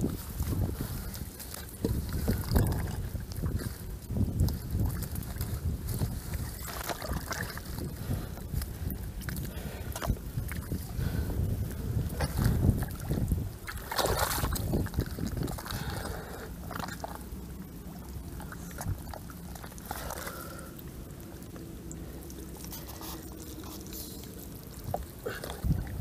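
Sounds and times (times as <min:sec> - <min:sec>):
steady low rumble: 0:00.0 - 0:26.0
wet mud squelching: 0:00.0 - 0:26.0.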